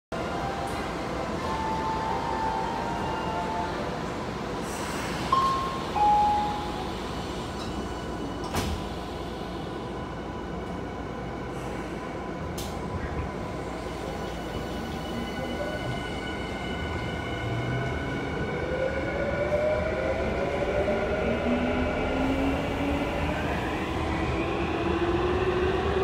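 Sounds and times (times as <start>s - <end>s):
train doors sliding shut: 7.5s - 9.3s.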